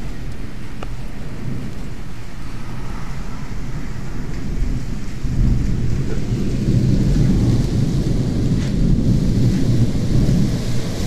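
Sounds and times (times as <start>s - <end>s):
rain falling: 0.0s - 11.0s
thunder rumbling: 0.0s - 11.0s.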